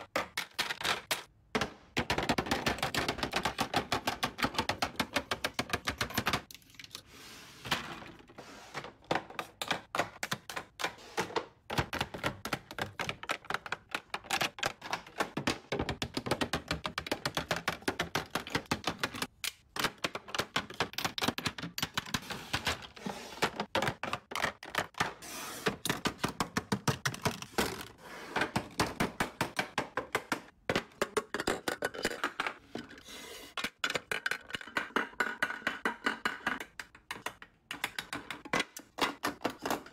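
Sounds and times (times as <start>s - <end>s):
makeup containers clicking: 11.8s - 22.0s.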